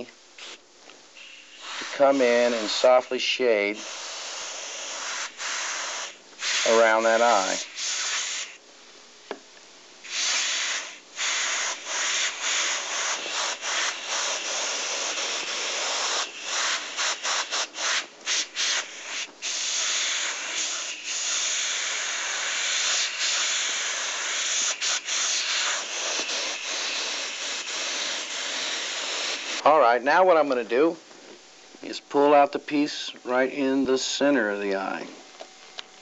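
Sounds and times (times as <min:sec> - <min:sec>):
airbrush spraying hiss: 0:00.0 - 0:00.6, 0:01.2 - 0:08.6, 0:10.0 - 0:29.8.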